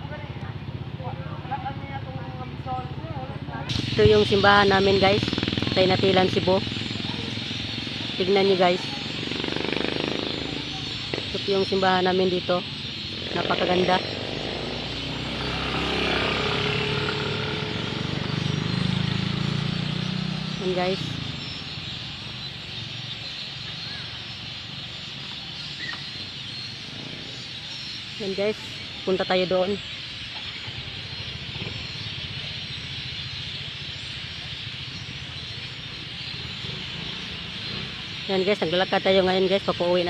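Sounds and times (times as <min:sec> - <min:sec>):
vehicle engine running: 0:00.0 - 0:25.4, 0:28.2 - 0:40.0.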